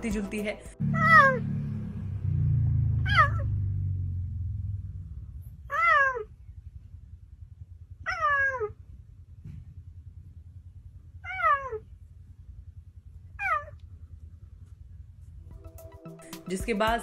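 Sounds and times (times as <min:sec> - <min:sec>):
low rumble: 0:00.6 - 0:15.8
cheetah meowing calls: 0:03.0 - 0:03.5, 0:05.6 - 0:06.4, 0:08.0 - 0:08.8, 0:11.2 - 0:11.9, 0:13.3 - 0:13.8.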